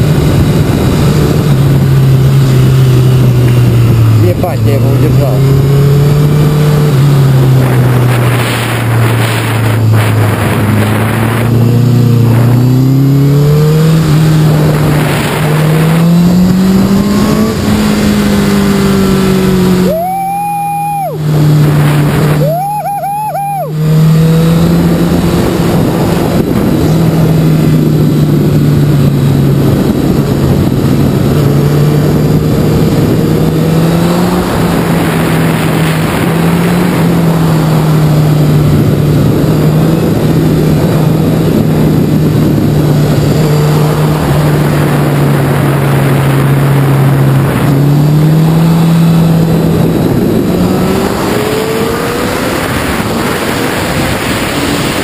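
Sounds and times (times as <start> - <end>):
motorcycle engine running: 0.0 - 55.0
wind rushing: 0.0 - 55.0.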